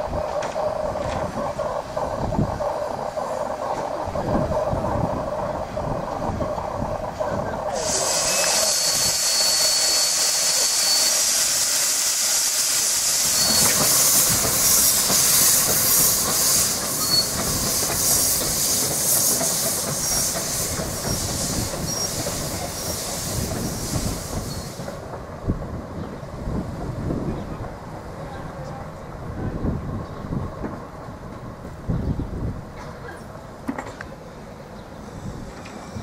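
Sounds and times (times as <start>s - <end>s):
steam locomotive hissing: 0.0s - 25.4s.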